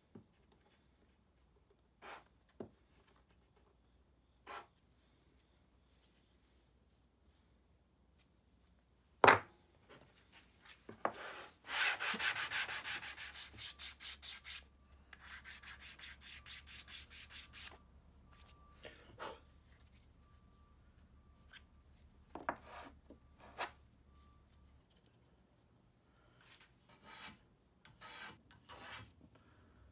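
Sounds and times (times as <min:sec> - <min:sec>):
wood block sanding strokes: 0:11.2 - 0:14.6, 0:15.2 - 0:17.7.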